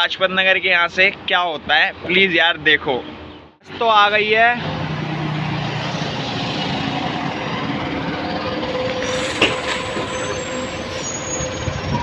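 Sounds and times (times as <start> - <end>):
bus engine running: 4.6 - 12.0.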